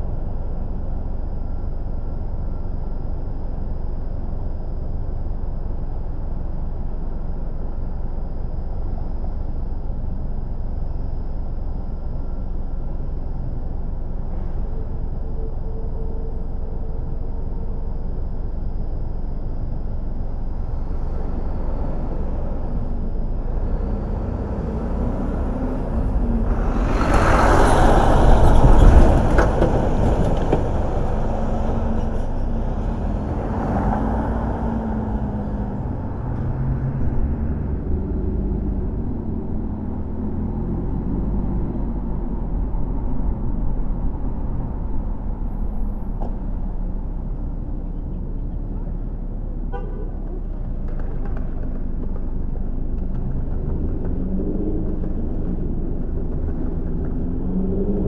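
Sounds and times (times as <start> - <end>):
road traffic rumble: 0.0 - 58.0
vehicle passing by: 20.7 - 58.0.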